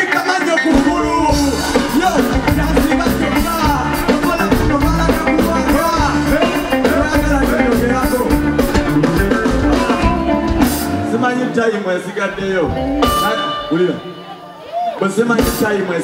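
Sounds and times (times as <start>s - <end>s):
person rapping into a microphone: 0.0s - 8.4s
electric guitar: 0.0s - 15.6s
drum kit beat: 0.5s - 11.2s, 12.6s - 14.3s.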